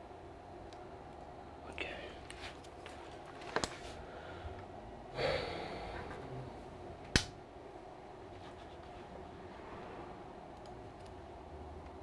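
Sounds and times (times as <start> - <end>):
person exhaling: 5.1 - 6.6.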